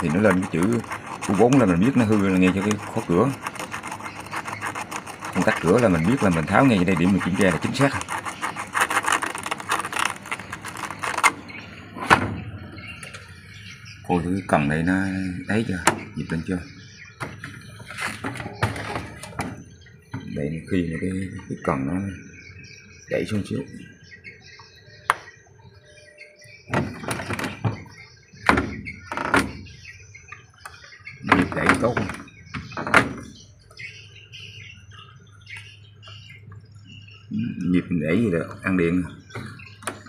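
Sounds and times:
plastic scraping and rubbing: 0:00.0 - 0:11.8, 0:17.6 - 0:19.6
birds chirping faintly: 0:00.0 - 0:40.0.

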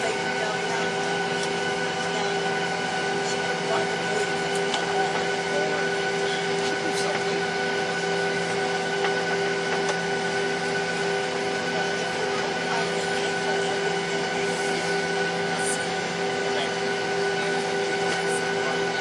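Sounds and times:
jet engine whine: 0:00.0 - 0:19.0.

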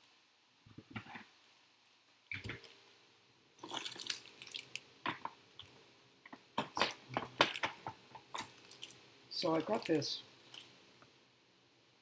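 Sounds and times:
plastic bag crinkling: 0:03.6 - 0:04.8, 0:06.7 - 0:10.7.

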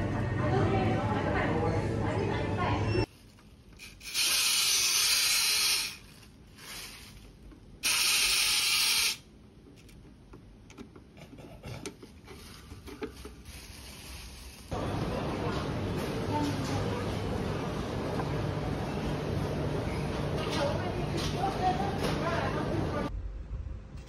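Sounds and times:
loud hissing bursts: 0:04.0 - 0:06.9, 0:07.8 - 0:09.2.

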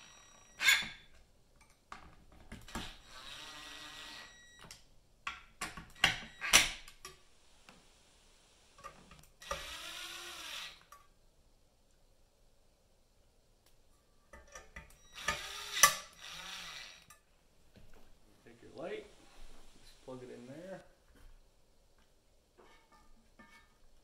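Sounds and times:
cordless drill driving screws: 0:02.7 - 0:04.6, 0:09.4 - 0:10.9, 0:15.1 - 0:17.1.

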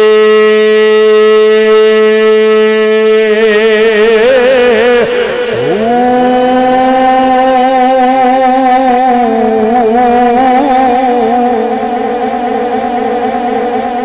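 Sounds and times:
man chanting through microphone: 0:00.0 - 0:14.0.

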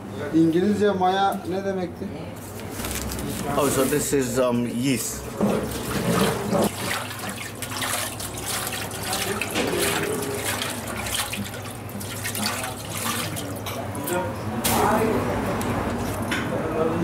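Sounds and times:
water running into steel bowl: 0:05.4 - 0:13.8.

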